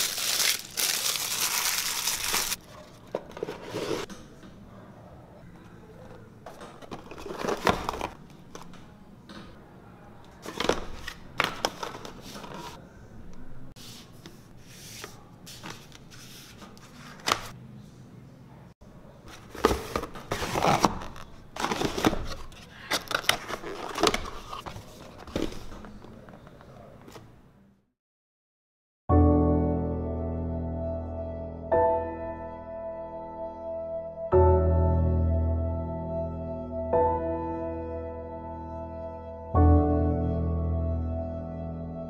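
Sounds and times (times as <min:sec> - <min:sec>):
cardboard and paper rustling: 0:00.0 - 0:04.1, 0:06.5 - 0:08.8, 0:10.3 - 0:12.8, 0:14.6 - 0:17.6, 0:19.3 - 0:27.3.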